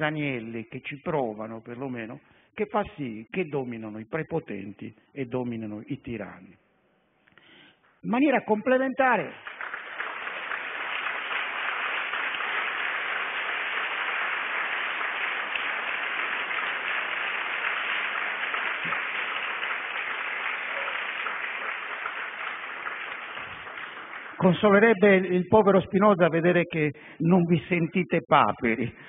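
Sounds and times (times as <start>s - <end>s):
audience applauding: 9.3s - 25.0s.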